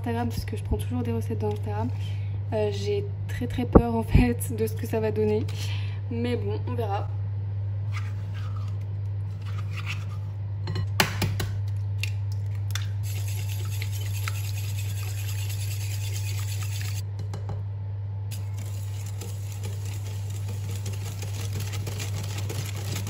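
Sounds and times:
steady low hum: 0.0s - 23.0s
wire whisk scraping glass bowl: 13.1s - 17.0s, 18.4s - 23.0s.

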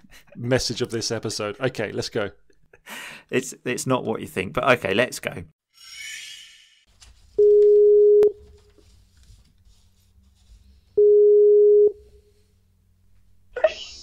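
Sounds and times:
call ringing tone beeps: 7.4s - 8.4s.

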